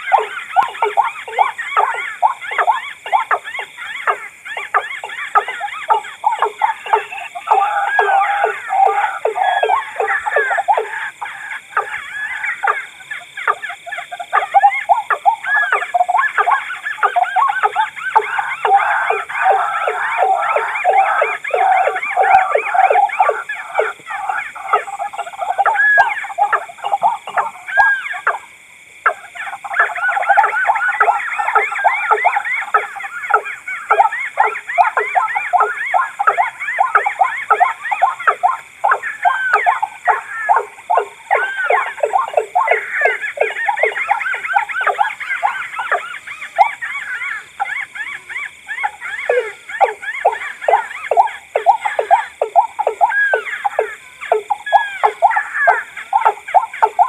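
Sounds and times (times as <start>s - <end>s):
birds giving hoarse repeated calls: 0.0s - 57.0s.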